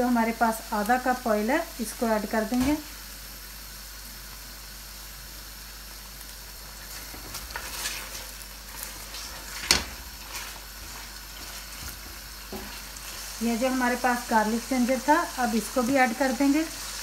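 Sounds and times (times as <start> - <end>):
meat sizzling in hot oil: 0.0 - 17.0
spatula scraping a pan: 6.8 - 13.3.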